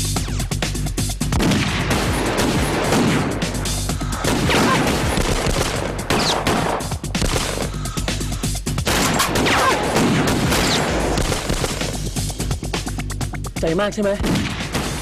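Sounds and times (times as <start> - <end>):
dramatic background music: 0.0 - 15.0
rapid gunfire: 1.3 - 7.9, 8.8 - 12.3, 14.2 - 15.0.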